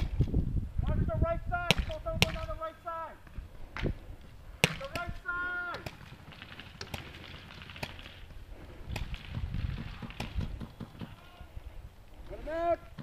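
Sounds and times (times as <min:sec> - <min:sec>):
paintball pistols firing: 0:01.7 - 0:02.6, 0:04.6 - 0:11.3.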